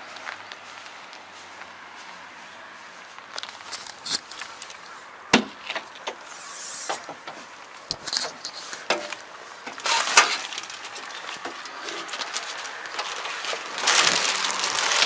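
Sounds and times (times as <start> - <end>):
knocks clicks and rustles: 3.2 - 15.0.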